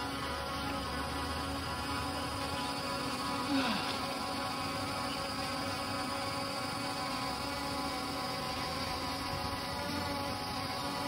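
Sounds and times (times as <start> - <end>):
quadcopter propellers whining: 0.0 - 11.0.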